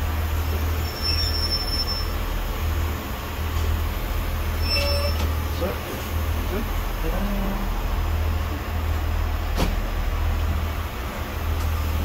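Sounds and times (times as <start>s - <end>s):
diesel railbus rumbling: 0.0s - 12.0s
thin high squeal: 4.6s - 5.2s.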